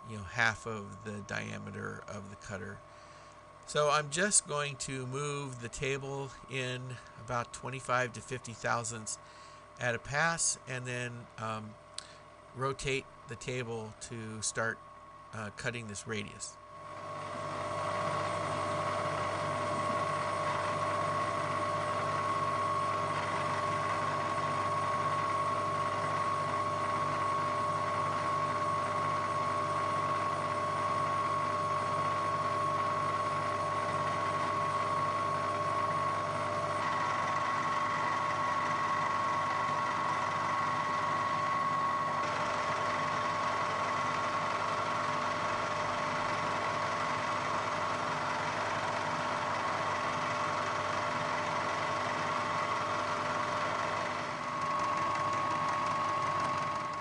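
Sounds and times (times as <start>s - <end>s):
milling machine cutting steel: 17.0s - 57.0s.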